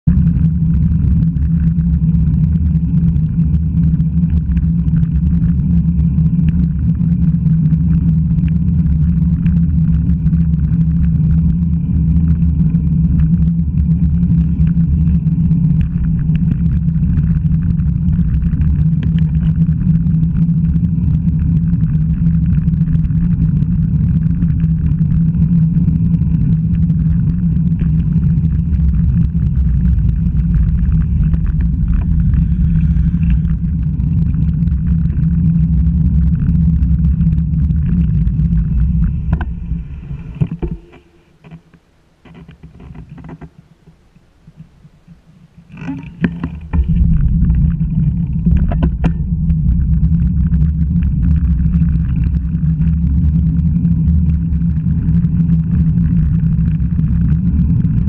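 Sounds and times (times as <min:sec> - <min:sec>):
wind buffeting: 0:11.1 - 0:41.4, 0:46.1 - 0:54.1.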